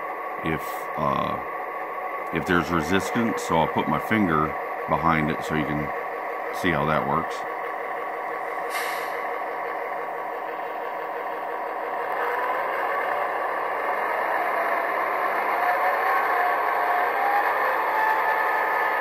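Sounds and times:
model diesel engine sound: 0.0s - 19.0s.

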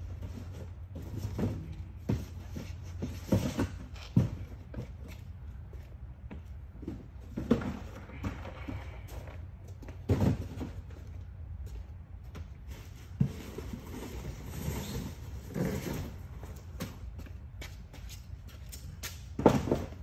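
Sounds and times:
footsteps on concrete floor: 0.0s - 20.0s
cardboard boxes thudding: 10.0s - 11.0s.

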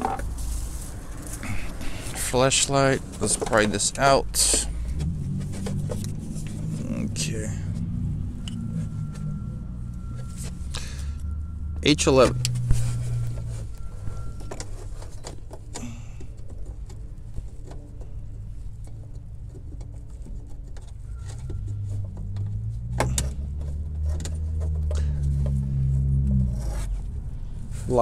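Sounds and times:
low steady rumble: 0.0s - 28.0s
rustling of plastic and glove: 0.2s - 4.0s.

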